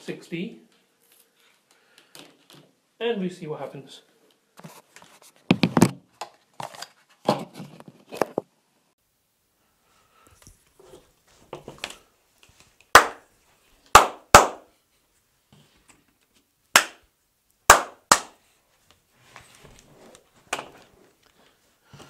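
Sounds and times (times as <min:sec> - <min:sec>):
hand claps: 0:13.0 - 0:13.2, 0:14.0 - 0:14.6, 0:16.8 - 0:17.0, 0:17.7 - 0:18.4.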